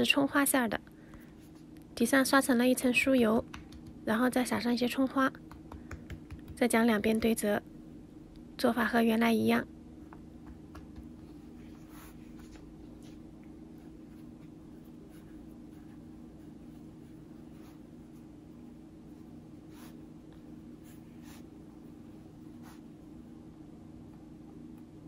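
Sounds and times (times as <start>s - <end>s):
steady low hum: 0.0s - 25.0s
hands rustling dough on board: 5.4s - 7.4s, 10.1s - 13.3s.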